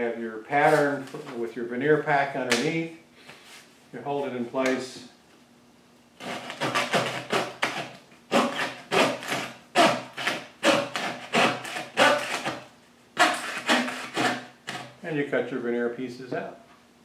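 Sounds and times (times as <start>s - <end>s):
fret saw cutting wood: 6.2s - 14.9s.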